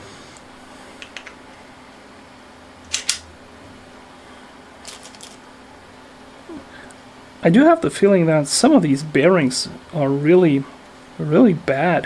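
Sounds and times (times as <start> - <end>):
faint steady hum: 0.0 - 12.0
small metal parts clinking: 2.9 - 3.2, 4.8 - 5.4.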